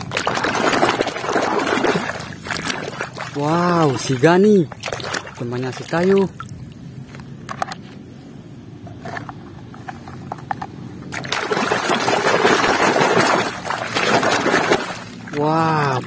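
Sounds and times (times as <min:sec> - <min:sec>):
toy splashing in water: 0:00.0 - 0:06.5, 0:11.1 - 0:16.0.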